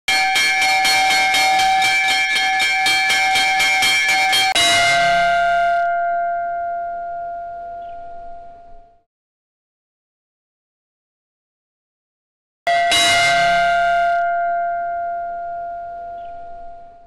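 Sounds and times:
small brass bell ringing: 0.1s - 9.0s, 12.7s - 17.0s.

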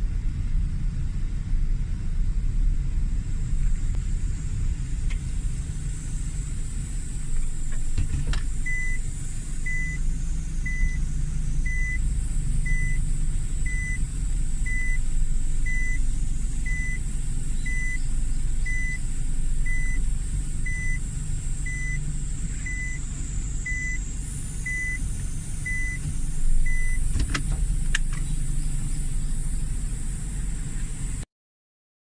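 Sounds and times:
van engine hum: 0.0s - 31.3s
reverse warning beeps: 8.6s - 10.0s, 10.6s - 11.0s, 11.6s - 21.0s, 21.6s - 23.0s, 23.6s - 27.1s.

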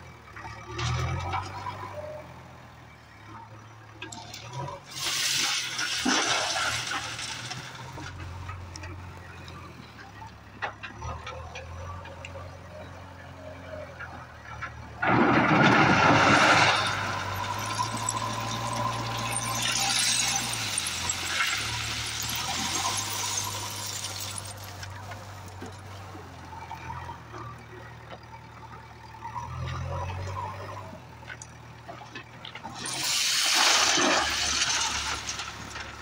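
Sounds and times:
diesel engine running: 0.0s - 36.0s
crushed stone pouring from bucket: 4.9s - 8.6s, 15.0s - 25.7s, 32.7s - 36.0s.

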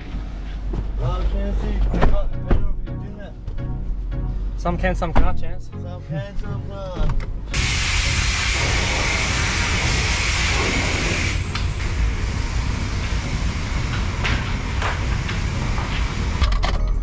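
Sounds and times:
pressure washer spraying metal hull: 7.6s - 16.4s.

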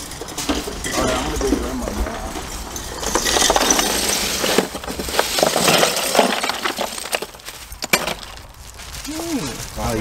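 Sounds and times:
ice cubes clattering: 3.0s - 8.5s.

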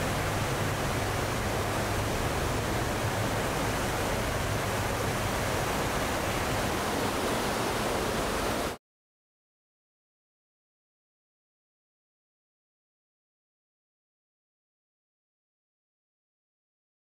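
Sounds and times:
churning sea: 0.0s - 8.8s.

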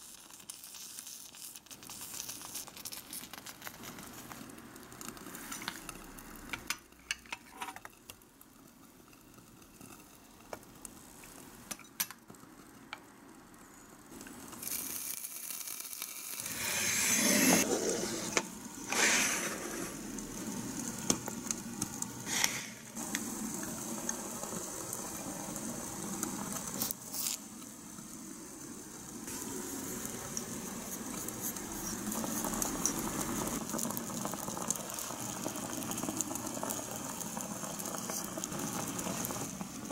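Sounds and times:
water heating hiss: 0.0s - 39.9s
water pouring into pot: 14.4s - 27.4s, 29.2s - 39.9s.

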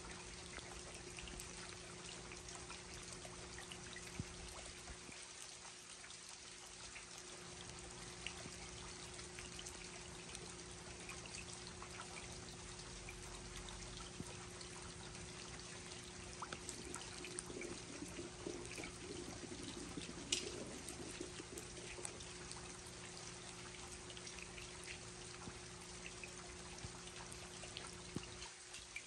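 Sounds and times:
water drips: 0.0s - 29.0s
water pouring and trickling: 0.0s - 29.0s
steady low hum: 6.8s - 28.5s
rain falling: 14.4s - 27.4s.

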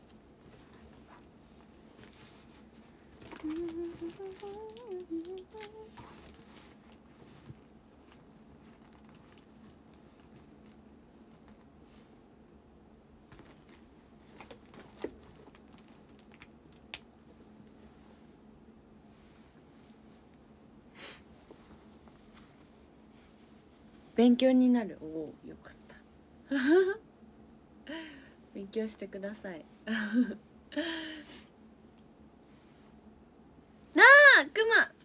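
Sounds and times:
woman humming: 3.3s - 6.2s.

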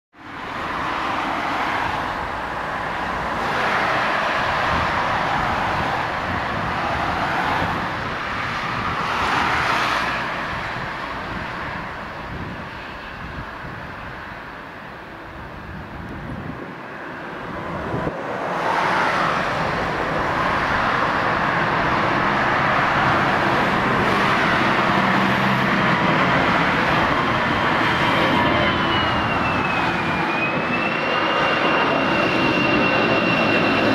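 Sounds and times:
jet engines roaring: 0.2s - 33.9s
falling whine: 16.7s - 33.9s.

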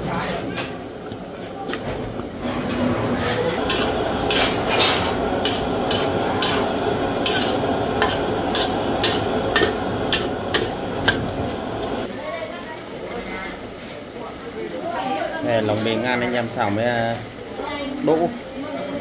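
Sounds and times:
food sizzling in a pan: 0.0s - 19.0s
spatula scraping a pan: 2.4s - 11.3s.

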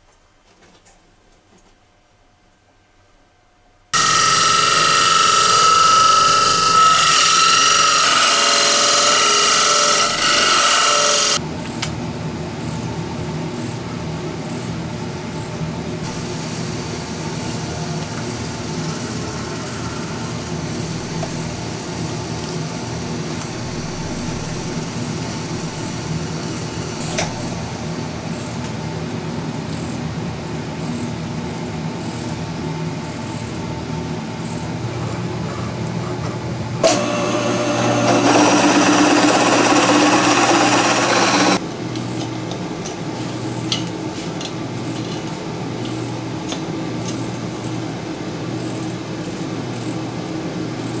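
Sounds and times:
shrill power tool whine: 4.0s - 11.4s, 36.8s - 41.6s
wood lathe humming: 4.0s - 11.4s, 36.8s - 41.6s.

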